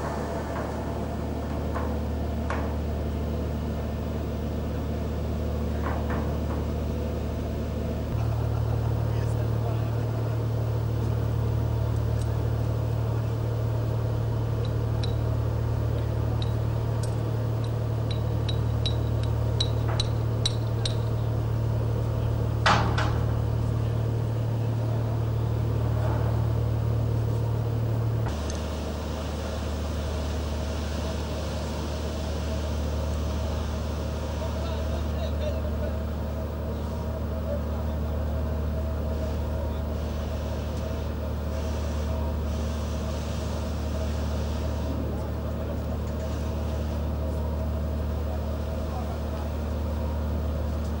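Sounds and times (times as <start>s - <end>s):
ship engine drone: 0.0s - 51.0s
light ticking clicks: 14.6s - 15.2s.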